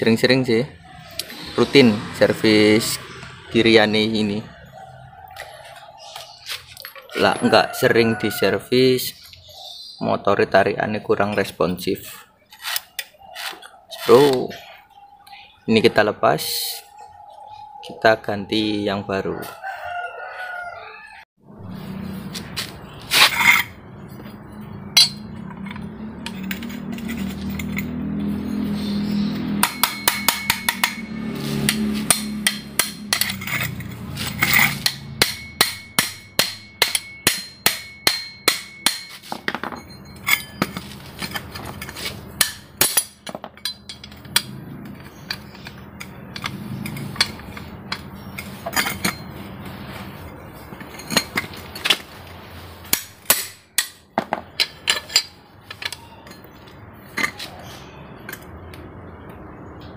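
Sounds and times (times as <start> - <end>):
hammer striking metal tool: 25.0 - 25.8, 29.5 - 44.6, 52.9 - 56.5.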